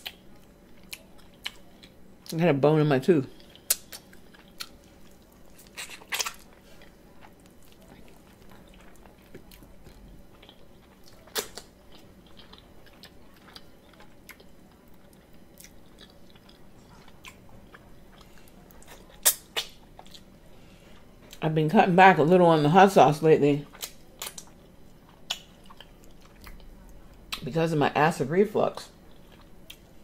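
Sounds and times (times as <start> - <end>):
chewing meat off bone: 0.0 - 2.4, 3.3 - 20.4, 23.6 - 27.4
sharp mouth clicks and smacks: 3.7 - 4.0.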